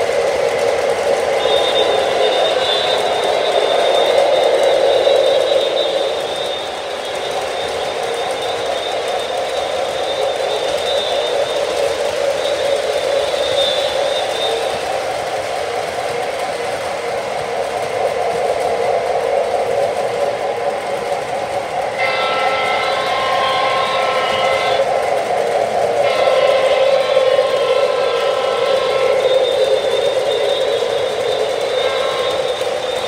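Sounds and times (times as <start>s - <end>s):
model train motors humming: 0.0s - 33.0s
model locomotive horn blasts: 1.4s - 12.6s, 21.9s - 24.9s, 26.0s - 33.0s.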